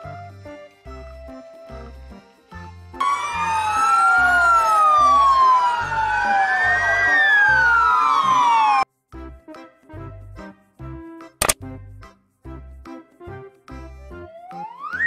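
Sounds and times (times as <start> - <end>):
background music: 0.0 - 15.0
emergency sirens wailing: 3.0 - 8.9, 14.2 - 15.0.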